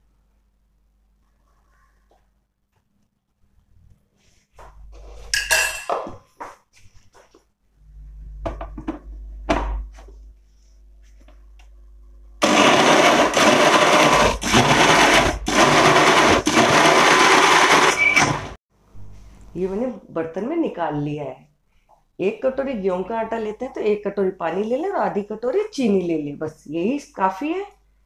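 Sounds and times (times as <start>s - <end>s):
spoon and bowl clinking: 5.3s - 6.2s
electric mixer grinder running: 12.4s - 18.6s.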